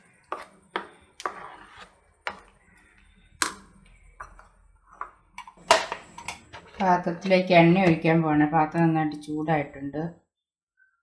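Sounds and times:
spoon scraping paste: 0.0 - 6.8.

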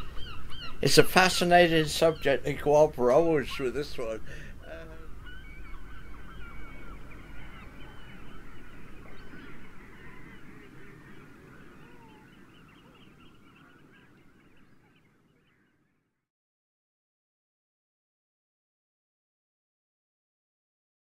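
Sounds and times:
flock of birds calling: 0.0 - 16.0.

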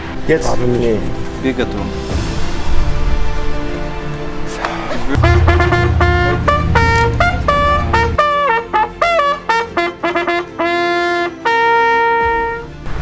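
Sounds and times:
brass hunting horn notes: 5.1 - 12.8.

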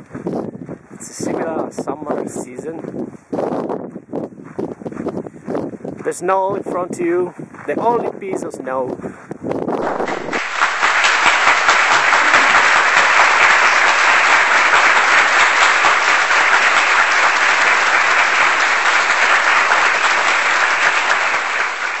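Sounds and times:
crowd clapping: 9.8 - 22.0.

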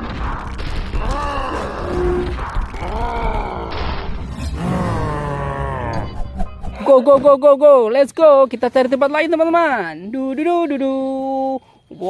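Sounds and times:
man groaning and grunting: 1.0 - 6.2.

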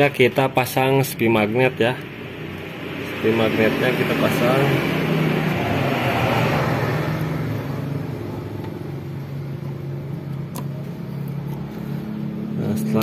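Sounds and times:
low engine hum: 2.0 - 13.0
rush of noise: 2.2 - 8.5.

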